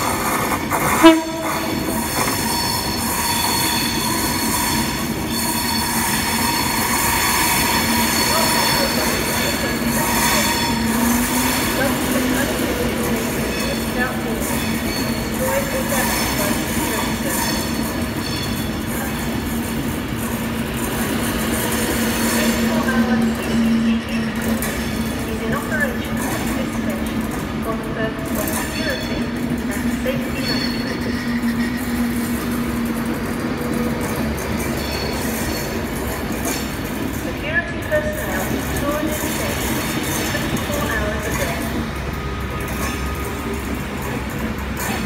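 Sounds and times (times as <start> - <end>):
train running noise: 0.0 - 45.0
train horn toot: 0.8 - 2.5
high-pitched wheel squeal: 1.0 - 11.8.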